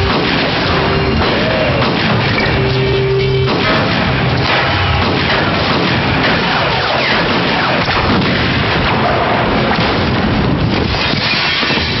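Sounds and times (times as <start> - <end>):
film music: 0.0 - 7.7
booming crash effects: 0.0 - 12.0.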